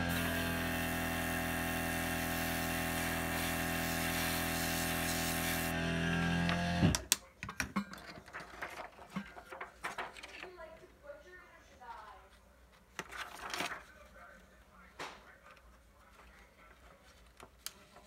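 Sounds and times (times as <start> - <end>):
compressor motor hum: 0.0 - 7.0
airbrush air hiss: 2.0 - 5.7.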